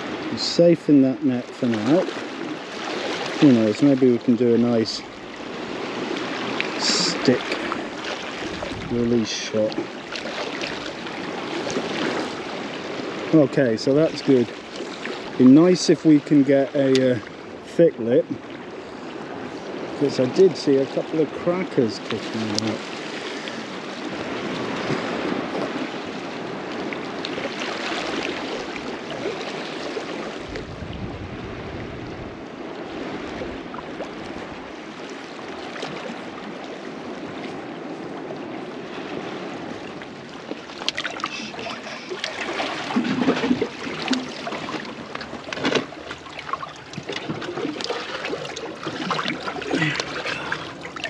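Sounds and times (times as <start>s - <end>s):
sea water lapping against rocks: 0.0s - 51.0s
water splashing and trickling: 1.2s - 17.4s, 19.2s - 31.7s, 33.1s - 51.0s
wind buffeting microphone: 4.6s - 13.3s, 22.3s - 51.0s.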